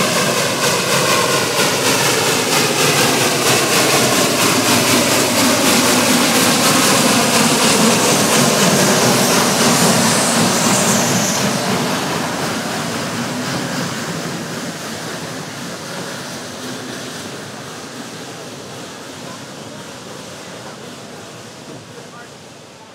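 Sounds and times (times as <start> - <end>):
steam locomotive passing: 0.0 - 22.9.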